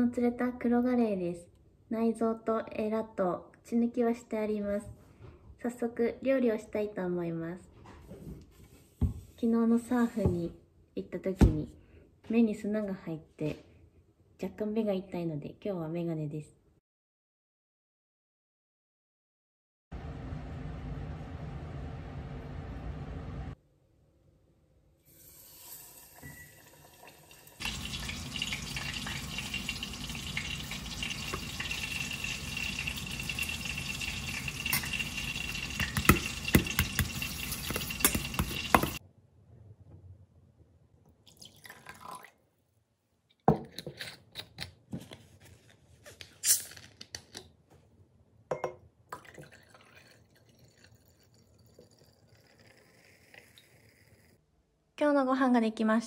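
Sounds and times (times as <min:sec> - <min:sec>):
fish frying in hot oil: 0:25.2 - 0:39.0.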